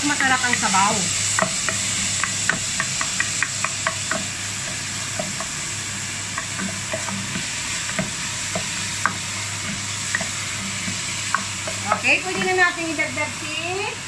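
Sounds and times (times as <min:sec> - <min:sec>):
food sizzling in hot oil: 0:00.0 - 0:14.0
spatula tapping a pot: 0:01.4 - 0:05.6, 0:06.3 - 0:12.7.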